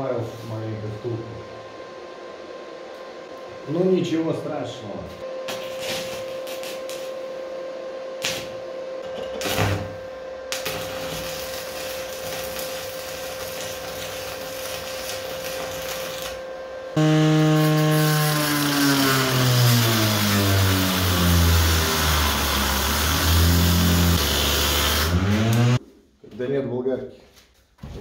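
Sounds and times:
arc welding crackling hiss: 5.5 - 7.2, 8.2 - 8.6, 9.3 - 16.4, 17.6 - 25.8
angle grinder cutting metal: 9.0 - 16.4, 17.0 - 25.8.

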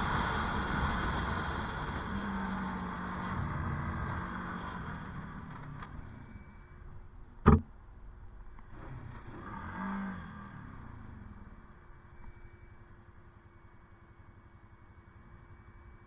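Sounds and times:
sharp knock: 7.4 - 7.7.

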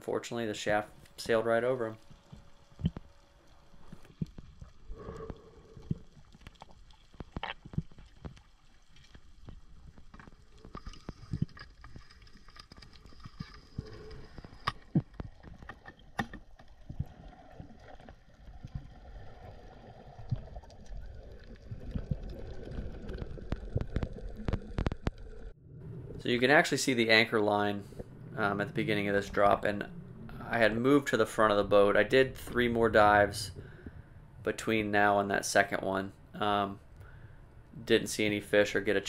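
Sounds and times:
rumble of moving water: 0.6 - 39.0
underwater clicks and pops: 2.1 - 3.1, 3.8 - 19.0, 20.2 - 25.5.

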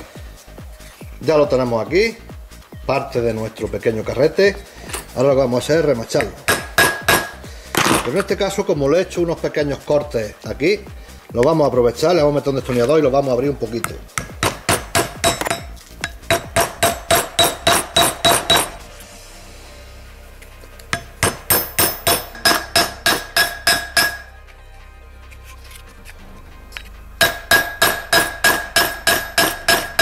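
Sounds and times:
hammer blows ringing on steel: 6.5 - 7.4, 14.3 - 18.8, 21.0 - 24.3, 27.2 - 30.0.

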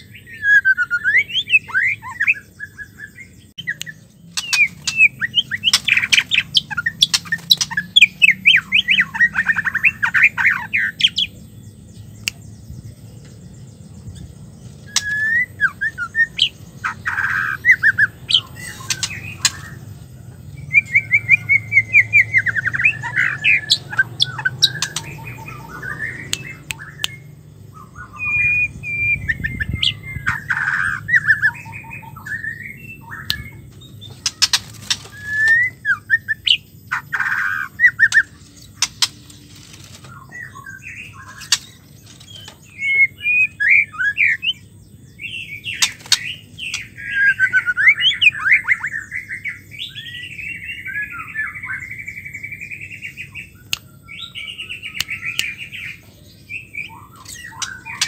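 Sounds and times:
bird singing chattering whistles: 0.0 - 11.3, 14.7 - 20.0, 20.6 - 58.0
sharp clicks: 24.2 - 25.3, 38.1 - 40.0, 41.4 - 42.7.

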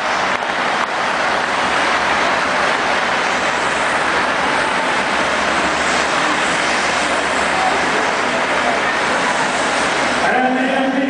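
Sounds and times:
helicopter turbine and rotor: 0.0 - 11.0
stadium crowd applauding and cheering: 0.0 - 11.0.

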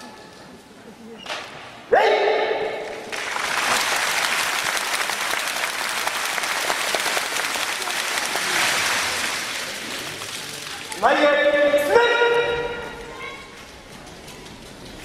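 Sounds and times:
person shouting: 1.9 - 2.7
audience applause: 3.0 - 11.0.

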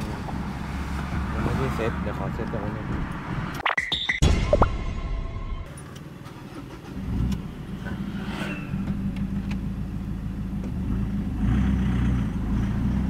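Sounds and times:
diesel engine starting and idling: 5.7 - 12.6.

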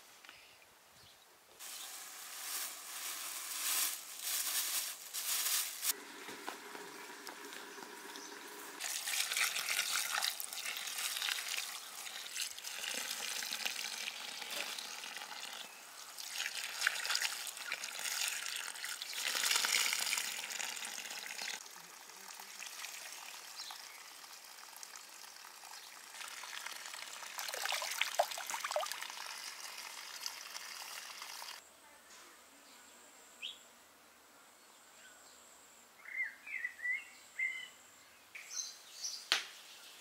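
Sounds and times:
water running and splashing: 1.6 - 31.6.

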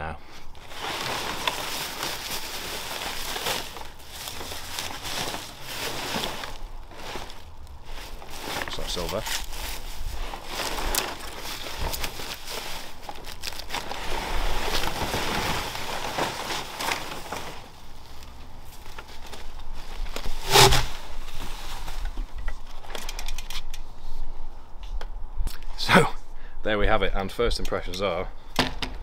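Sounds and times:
bubble wrap crinkling: 0.5 - 22.1.

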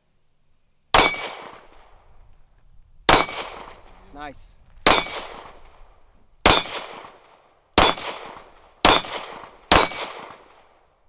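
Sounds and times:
handgun shots: 1.0 - 1.7, 3.1 - 3.8, 4.8 - 5.7, 6.4 - 7.2, 7.8 - 10.6.

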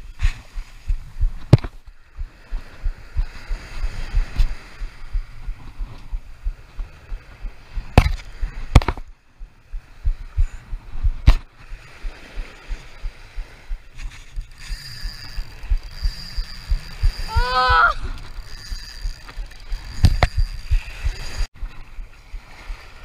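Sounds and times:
faint breaking surf: 0.0 - 23.0
wind and handling thumps on camera: 0.0 - 23.0
sharp knocks: 7.9 - 9.1.

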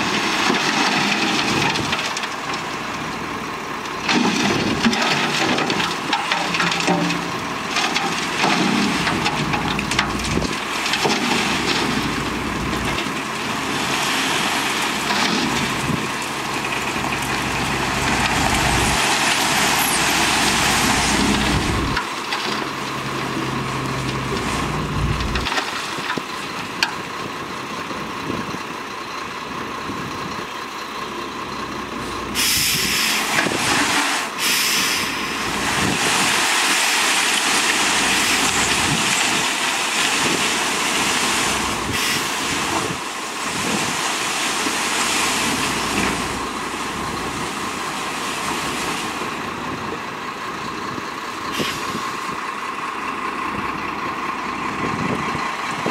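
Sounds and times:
soil sliding out: 0.0 - 26.4, 32.3 - 49.8
truck engine running: 0.0 - 55.9
loud hiss: 32.4 - 38.7, 41.2 - 42.7.

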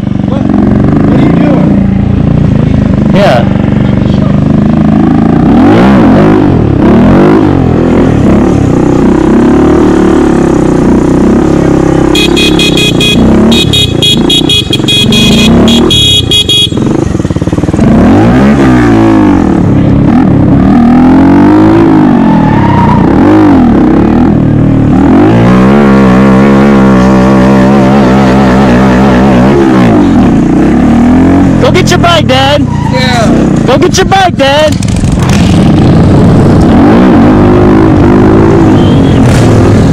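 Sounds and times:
motorcycle engine revving: 0.0 - 39.9
horn beeping in rapid pulses: 12.0 - 17.0, 38.5 - 39.4.

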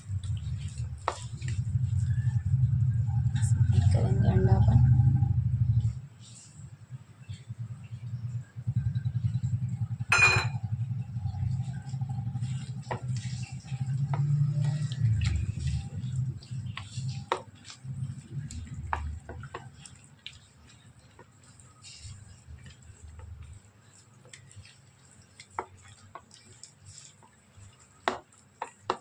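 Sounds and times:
steady low rumble: 0.0 - 6.1
sharp clink: 10.1 - 10.6
taps against ceramic plate: 10.1 - 10.6.

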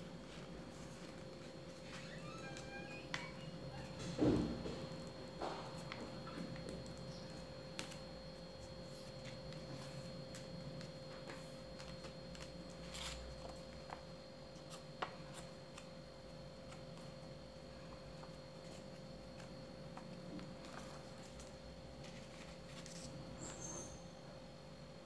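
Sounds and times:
faint hum: 0.0 - 25.0
paper being folded and creased: 11.1 - 14.0, 18.2 - 23.2.

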